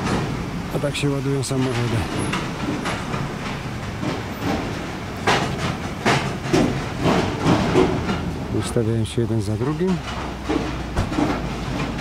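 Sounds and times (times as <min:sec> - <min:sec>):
low rumble of cars: 0:00.0 - 0:12.0
knocks: 0:01.6 - 0:08.3, 0:09.9 - 0:12.0.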